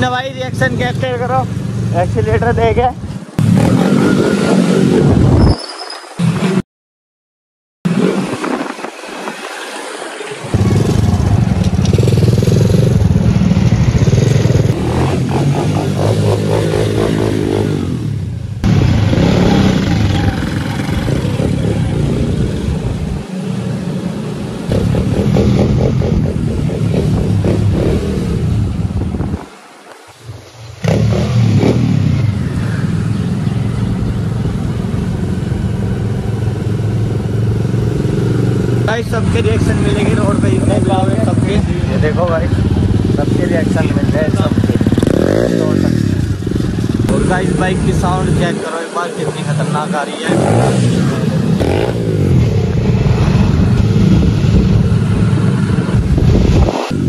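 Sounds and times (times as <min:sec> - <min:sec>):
dirt bike engine revving: 0:03.4 - 0:05.3, 0:10.5 - 0:23.0, 0:24.7 - 0:28.8, 0:30.8 - 0:34.7, 0:35.3 - 0:57.0.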